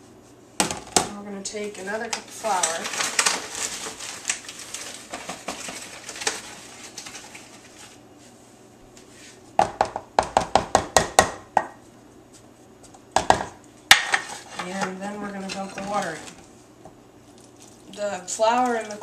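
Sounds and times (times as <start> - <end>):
plastic bag rustling: 1.6 - 8.3.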